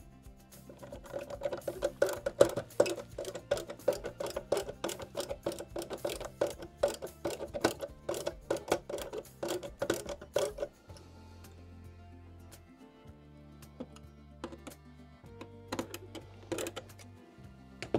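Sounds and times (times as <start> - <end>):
clicking on hollow plastic: 0.7 - 11.0, 13.8 - 14.8, 15.7 - 17.1.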